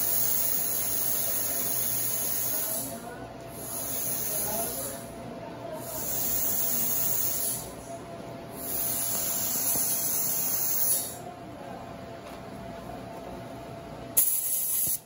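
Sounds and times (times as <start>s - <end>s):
dental handpiece whirring: 0.0s - 2.9s, 3.5s - 5.1s, 5.8s - 7.7s, 8.6s - 11.2s.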